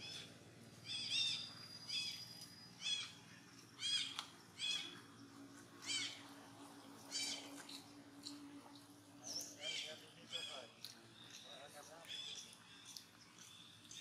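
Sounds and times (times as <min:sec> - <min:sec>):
infant monkey high-pitched calls: 0:00.0 - 0:05.0, 0:05.8 - 0:06.4, 0:07.0 - 0:07.8, 0:09.3 - 0:10.7.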